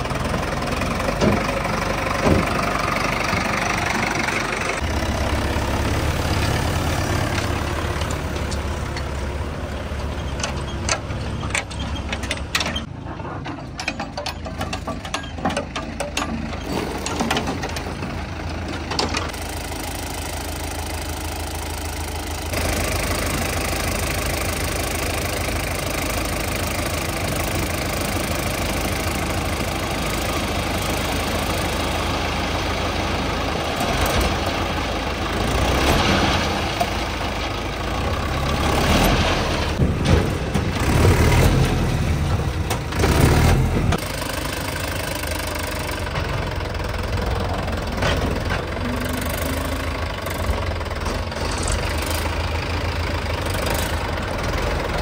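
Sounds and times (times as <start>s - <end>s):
tractor diesel engine running: 0.0s - 55.0s
sharp knocks and clatter: 10.3s - 18.1s, 38.9s - 44.1s.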